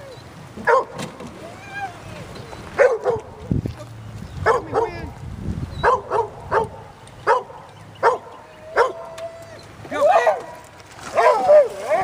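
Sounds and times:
dog barking: 0:00.7 - 0:01.0, 0:02.8 - 0:03.3, 0:04.5 - 0:05.0, 0:05.8 - 0:09.1, 0:11.2 - 0:12.0
dog whining: 0:01.4 - 0:02.8, 0:08.5 - 0:09.7.

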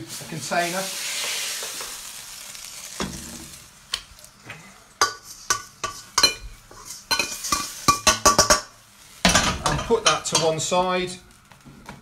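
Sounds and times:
frying pan sizzle: 0:00.0 - 0:12.0
utensil clinking and scraping on pan: 0:05.0 - 0:10.7.

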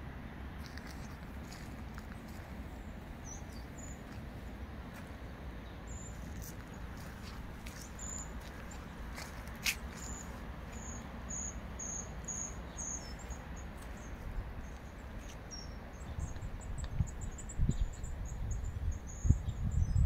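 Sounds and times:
cricket chirping: 0:10.0 - 0:13.7.

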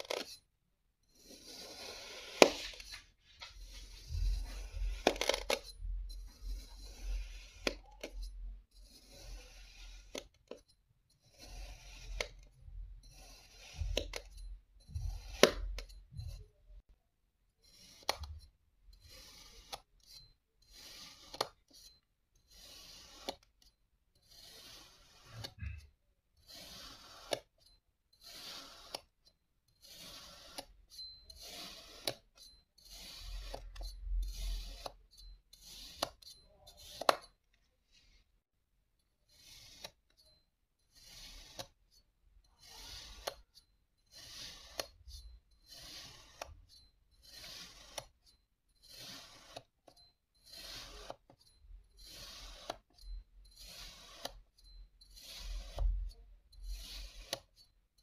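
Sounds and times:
knife slicing through sand: 0:28.2 - 0:29.0, 0:29.8 - 0:30.6.

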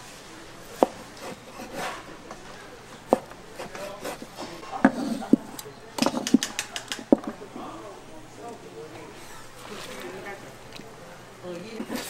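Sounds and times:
faint rubbing and scraping: 0:00.0 - 0:07.9, 0:08.6 - 0:12.0.

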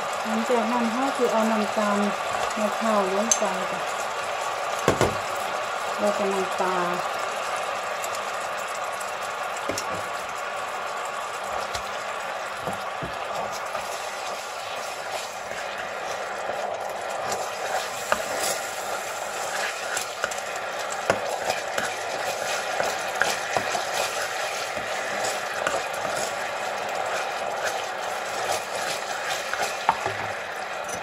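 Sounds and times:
curry sauce sizzling and bubbling: 0:00.0 - 0:31.0
plastic spatula scraping a pan: 0:21.0 - 0:26.4.

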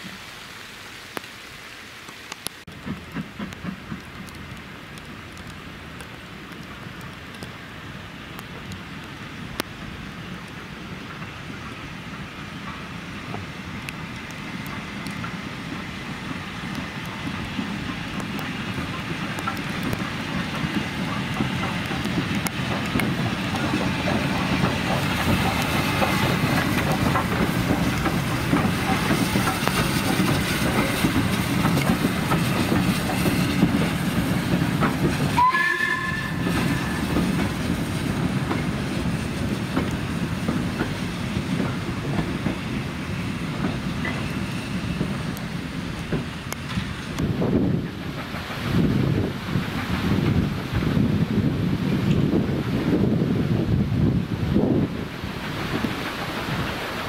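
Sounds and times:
wheels clattering on rail joints: 0:02.7 - 0:07.6, 0:08.4 - 0:57.0
steam train passing: 0:02.7 - 0:57.0
high train whistle: 0:35.3 - 0:37.2.

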